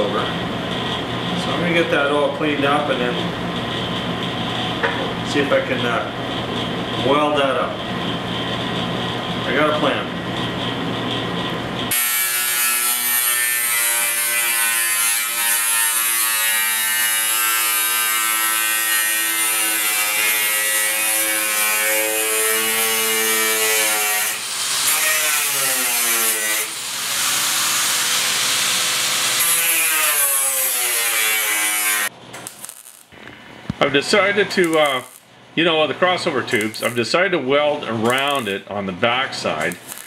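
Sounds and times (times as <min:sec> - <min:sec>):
angle grinder cutting steel: 0:11.9 - 0:33.1, 0:34.5 - 0:35.3, 0:36.5 - 0:37.1, 0:38.0 - 0:38.6, 0:39.6 - 0:40.0.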